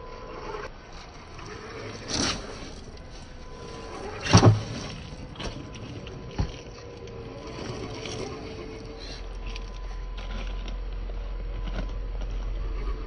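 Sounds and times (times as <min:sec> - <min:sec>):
electric motor whining: 0:00.0 - 0:13.0.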